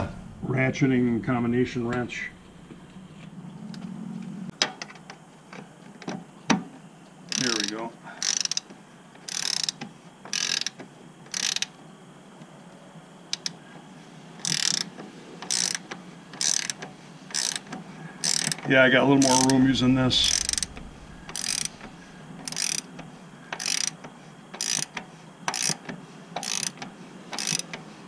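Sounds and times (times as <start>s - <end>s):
ratcheting wrench clicking: 7.3s - 11.7s, 13.3s - 13.6s, 14.4s - 19.6s, 20.2s - 27.8s.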